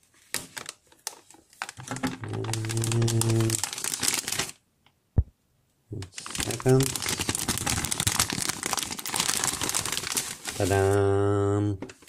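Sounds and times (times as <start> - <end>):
metallic bag crinkling: 0.3 - 4.6, 6.1 - 11.0
man humming: 2.3 - 3.6.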